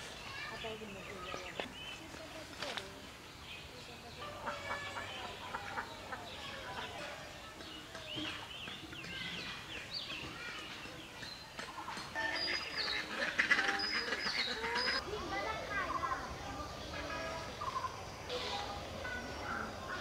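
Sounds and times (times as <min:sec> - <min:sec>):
farmyard fowl calling: 0:04.2 - 0:07.0, 0:11.7 - 0:15.0.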